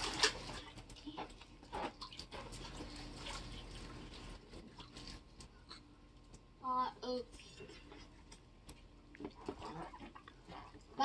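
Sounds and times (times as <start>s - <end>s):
water splashing in paddling pool: 0.0s - 5.7s.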